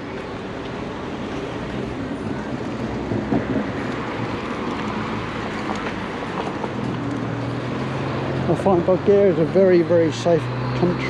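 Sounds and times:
car engines passing: 0.0s - 11.0s.

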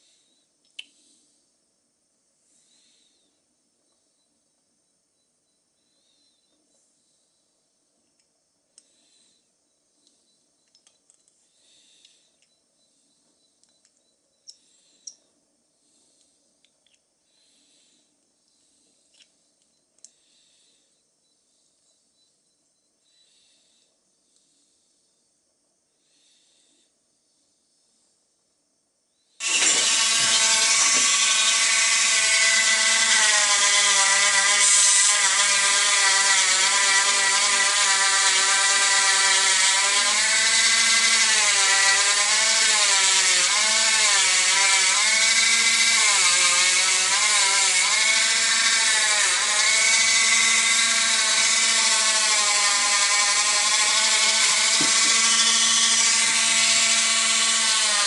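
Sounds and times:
rotary tool cutting metal: 29.4s - 58.0s.

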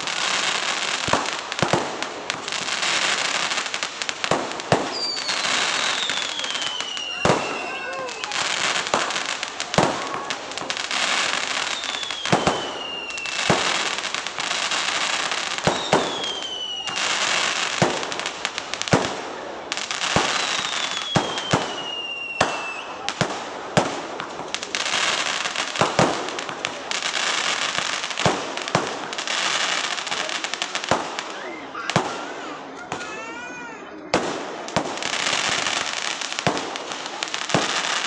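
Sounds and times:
crackling hiss: 0.0s - 33.2s, 34.2s - 38.0s
falling firework whistles: 4.7s - 18.4s, 20.0s - 23.2s.

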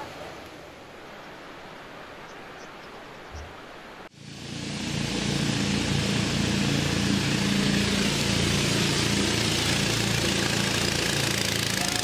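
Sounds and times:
water hissing along hulls: 3.6s - 12.0s
motorboat engines running: 4.2s - 12.0s.

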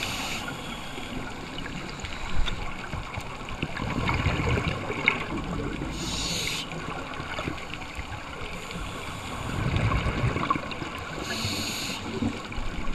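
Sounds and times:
exhaled bubbles rumbling underwater: 0.0s - 12.9s
scuba regulator hissing: 6.0s - 6.7s, 11.2s - 12.2s.

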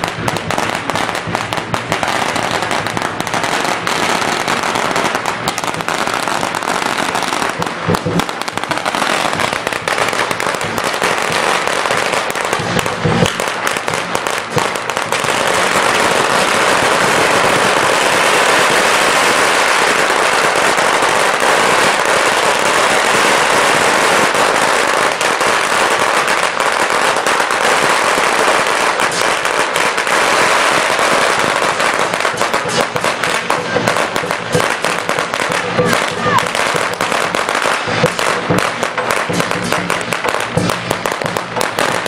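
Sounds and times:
firecrackers crackling: 0.0s - 42.0s.

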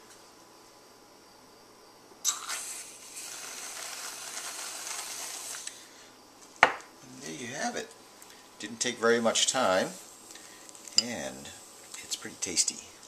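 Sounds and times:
whipped cream dispenser hissing: 2.2s - 5.9s.

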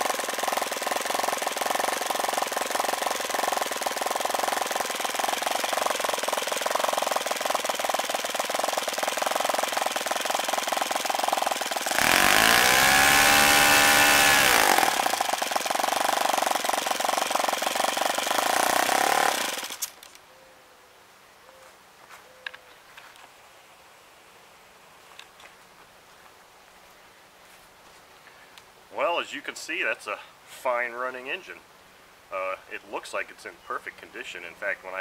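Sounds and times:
model engine at full throttle: 0.0s - 20.0s.

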